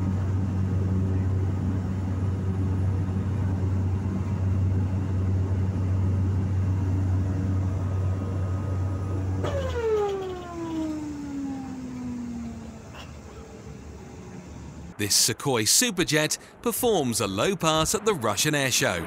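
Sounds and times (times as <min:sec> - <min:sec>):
light aircraft engine droning: 0:00.0 - 0:19.0
whine falling in pitch: 0:06.6 - 0:15.0.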